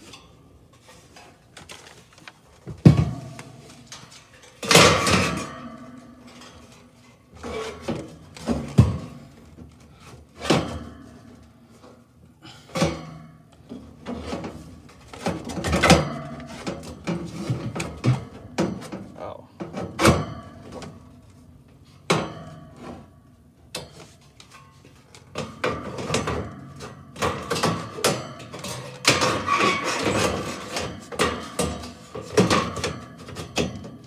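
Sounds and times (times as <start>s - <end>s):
knocks and clunks of handled parts: 0.0s - 34.0s.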